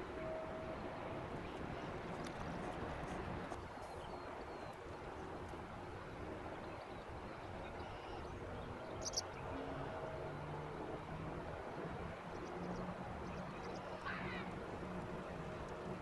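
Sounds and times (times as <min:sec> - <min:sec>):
ship engine low rumble: 0:00.0 - 0:16.0.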